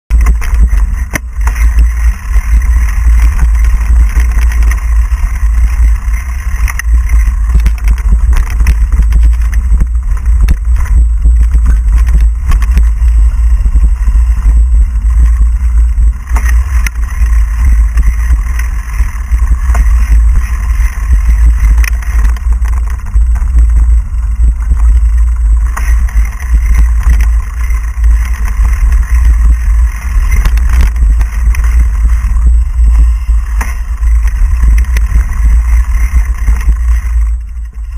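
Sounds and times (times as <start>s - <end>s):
wind rumble on microphone: 0.0s - 37.9s
bike rattles and knocks: 0.1s - 37.9s.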